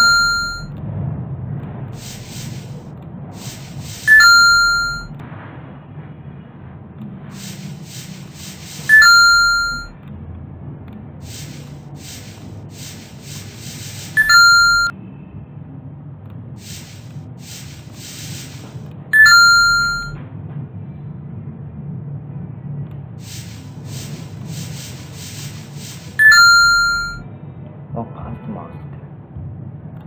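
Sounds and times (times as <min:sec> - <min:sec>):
two-note chime: 0:00.0 - 0:00.7, 0:04.1 - 0:05.1, 0:08.9 - 0:09.9, 0:14.2 - 0:14.9, 0:19.2 - 0:20.2, 0:26.2 - 0:27.2.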